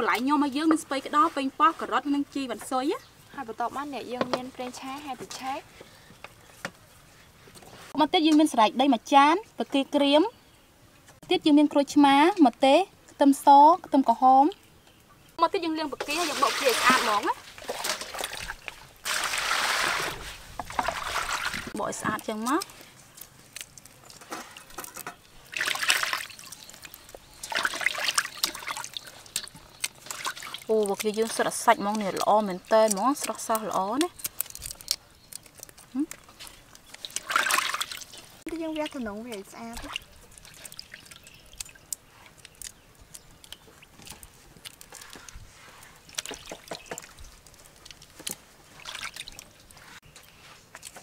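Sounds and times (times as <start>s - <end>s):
water splashing into metal basin: 16.0s - 21.8s, 24.1s - 33.9s, 36.9s - 41.9s, 46.1s - 47.3s, 48.8s - 49.5s
water dripping: 20.6s - 51.0s.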